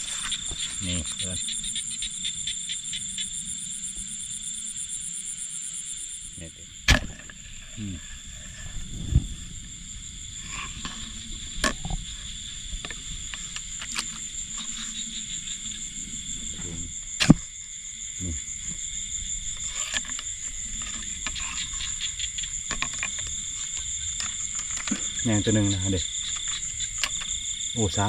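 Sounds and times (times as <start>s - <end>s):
frogs and insects calling: 0.0s - 28.0s
sharp clicks or knocks: 6.9s - 7.3s, 17.2s - 17.5s.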